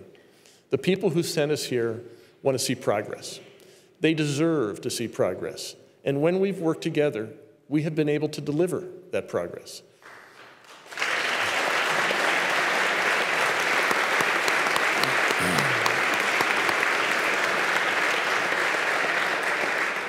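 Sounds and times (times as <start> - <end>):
crowd applauding: 10.0 - 20.0.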